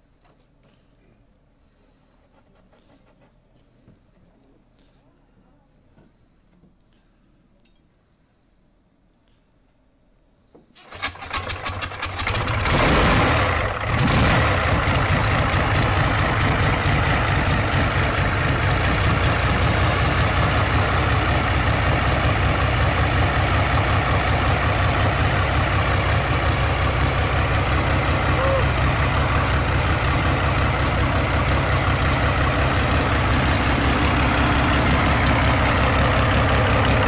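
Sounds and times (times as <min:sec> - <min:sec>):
tank engine starting and idling: 0:10.8 - 0:37.0.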